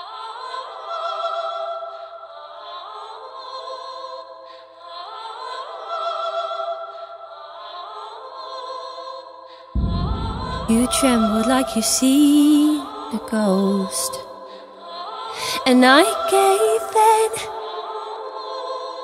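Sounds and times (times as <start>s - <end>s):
soft slow sustained music: 9.8s - 14.4s.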